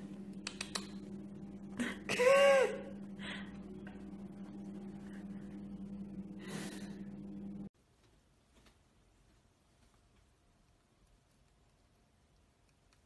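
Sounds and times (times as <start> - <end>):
steady low hum: 0.0 - 7.7.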